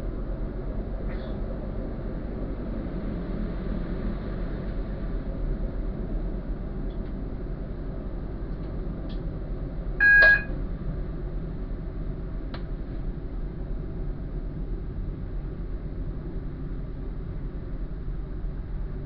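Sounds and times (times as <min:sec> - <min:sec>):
train rumbling on track: 0:00.0 - 0:19.0
loud electronic beep: 0:10.0 - 0:10.5.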